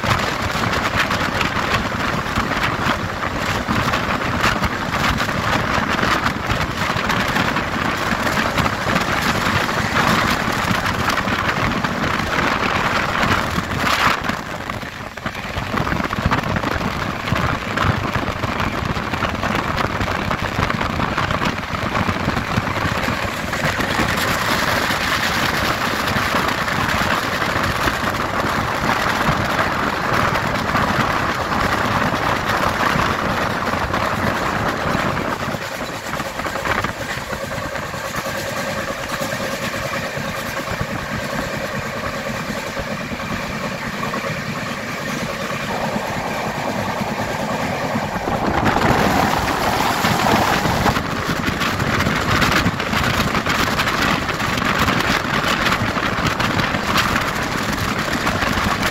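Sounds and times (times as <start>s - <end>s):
train wheels on rails: 0.0s - 58.9s
wind buffeting microphone: 0.0s - 58.9s.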